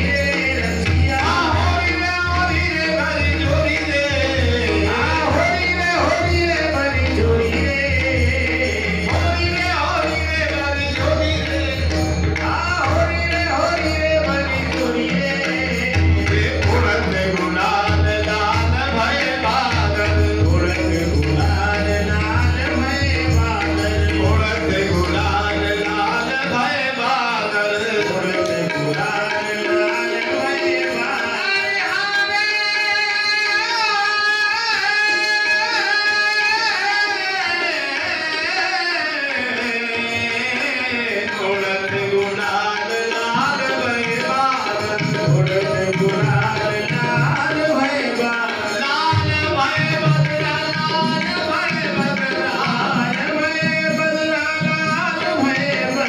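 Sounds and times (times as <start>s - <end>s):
hand drum: 0.0s - 32.4s
person singing devotional song: 0.0s - 56.0s.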